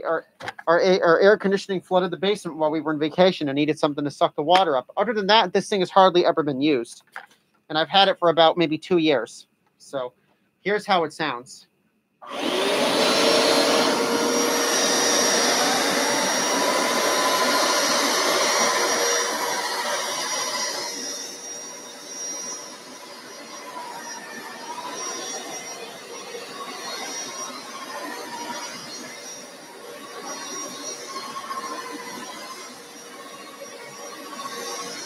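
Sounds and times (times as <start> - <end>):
carpet cleaner motor whining: 12.2 - 35.0.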